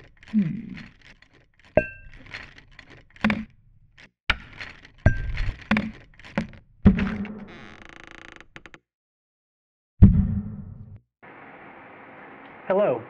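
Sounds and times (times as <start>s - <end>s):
metal tools dropping and clattering: 4.3s - 5.7s.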